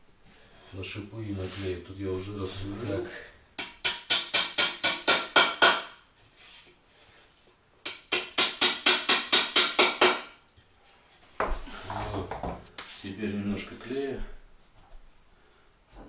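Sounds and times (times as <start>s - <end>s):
hammer tapping wood: 3.6s - 6.0s, 7.9s - 10.3s.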